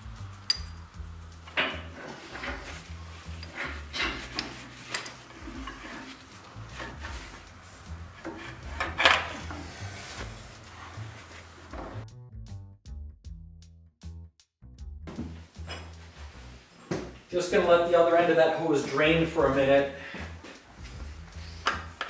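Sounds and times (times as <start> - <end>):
rubber hoses rubbing and rustling: 1.3 - 12.1, 20.3 - 22.0
rag rubbing: 1.6 - 12.0.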